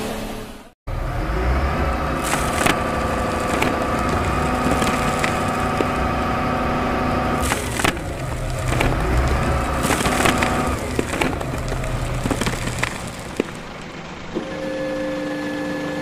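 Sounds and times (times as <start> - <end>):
soil and gravel sliding: 1.7 - 14.4
louder cracks: 2.2 - 14.3.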